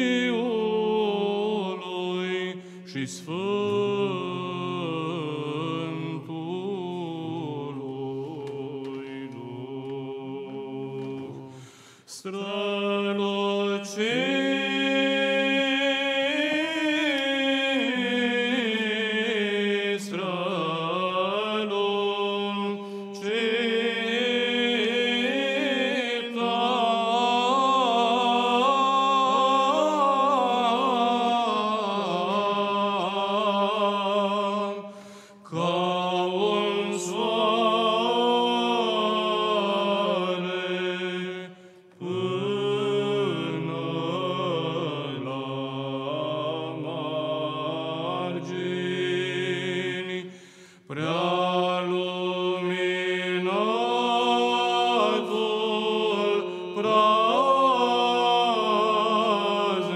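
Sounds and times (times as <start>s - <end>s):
man singing ornamented melody: 12.1s - 50.2s.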